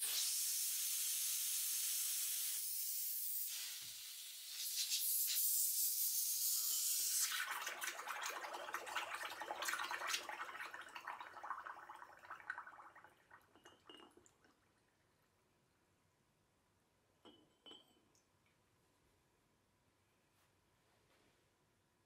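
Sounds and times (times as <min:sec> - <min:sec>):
gas hissing from magazine: 0:00.0 - 0:07.3
gas bubbling in water: 0:07.2 - 0:15.0.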